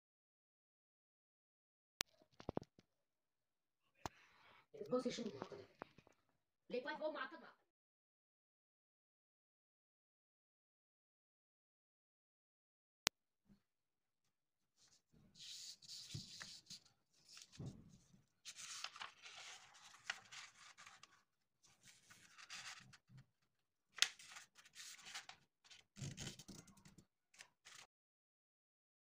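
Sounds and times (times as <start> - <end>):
paper rustling and sliding: 15.4 - 17.8, 18.5 - 23.1, 24.0 - 26.8, 27.4 - 27.9.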